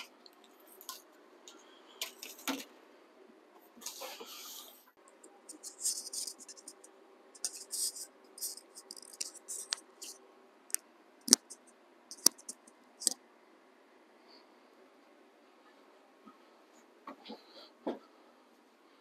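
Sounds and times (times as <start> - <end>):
scratchy handling noises: 5.3 - 10.2.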